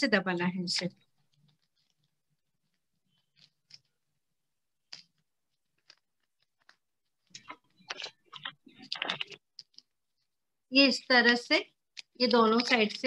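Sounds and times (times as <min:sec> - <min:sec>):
newspaper crackling: 0:12.0 - 0:13.0.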